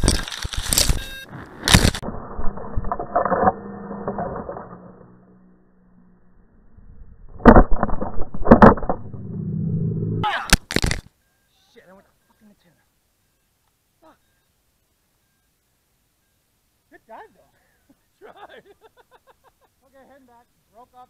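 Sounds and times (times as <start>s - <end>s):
rustling in leaves and grass: 0.0s - 2.1s.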